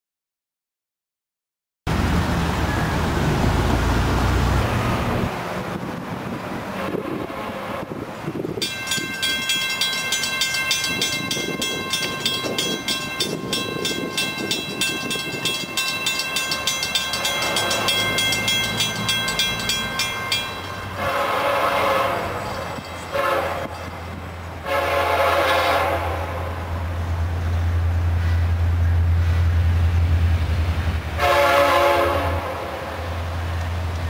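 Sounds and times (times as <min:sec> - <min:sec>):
locomotive horn: 0:06.7 - 0:08.2, 0:20.8 - 0:23.9, 0:24.6 - 0:26.9, 0:31.2 - 0:33.3
crossing bell ringing: 0:08.6 - 0:24.3.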